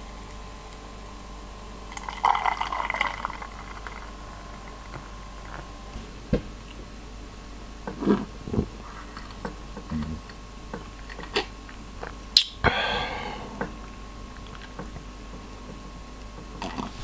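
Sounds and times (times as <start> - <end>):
beer fizzing into a glass: 1.9 - 4.2.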